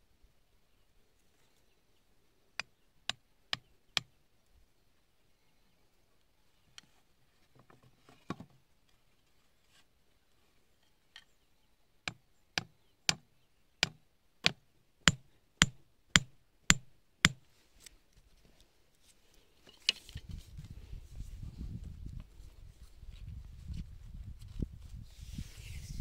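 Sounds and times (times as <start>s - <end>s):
tool knocking on bamboo: 13.8s - 17.4s.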